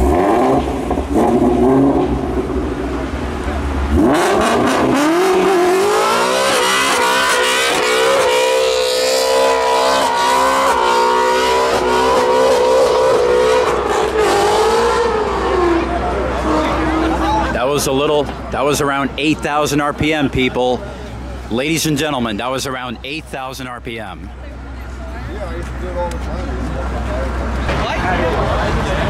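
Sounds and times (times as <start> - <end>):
car engine revving: 0.0 - 19.8.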